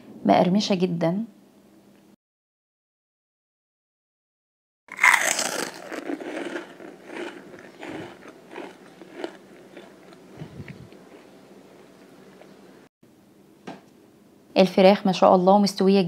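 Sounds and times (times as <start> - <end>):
loud crunch of biting chicken: 4.9 - 12.5
soft chewing crunches: 4.9 - 12.9.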